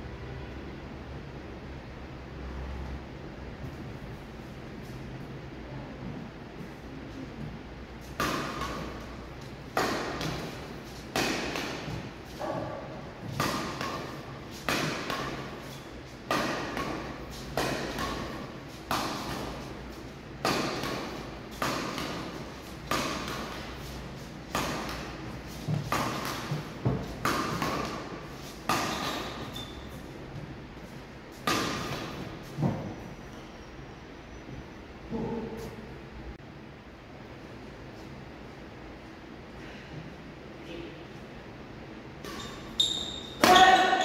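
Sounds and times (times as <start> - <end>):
rackets hitting shuttlecocks: 8.1 - 29.8, 31.4 - 32.8, 42.2 - 44.0.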